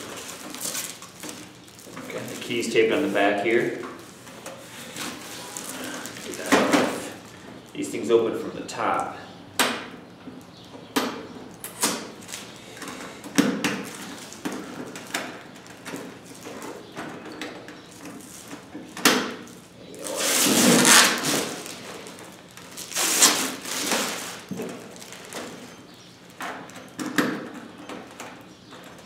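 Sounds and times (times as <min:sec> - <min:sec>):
rustling scrapes: 0:04.0 - 0:07.6, 0:19.9 - 0:25.8.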